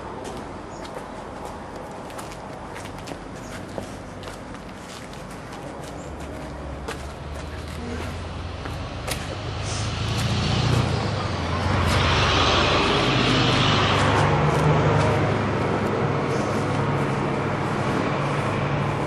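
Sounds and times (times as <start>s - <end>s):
vehicle engine running: 6.8s - 19.0s.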